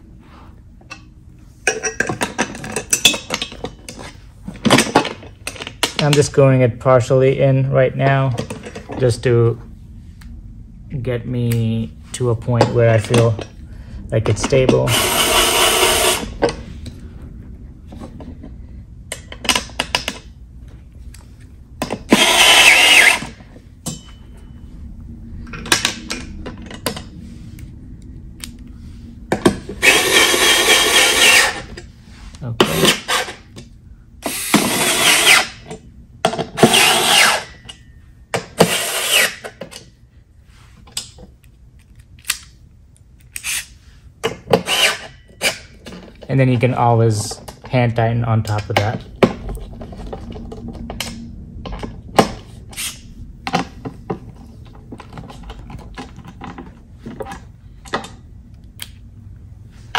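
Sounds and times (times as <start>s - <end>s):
cordless electric screwdriver running: 22.1s - 23.2s.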